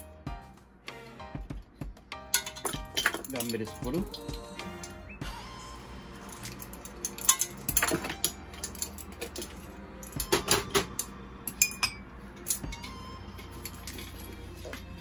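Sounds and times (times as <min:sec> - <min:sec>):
measuring spoons clattering: 0:02.3 - 0:05.0, 0:06.2 - 0:14.4.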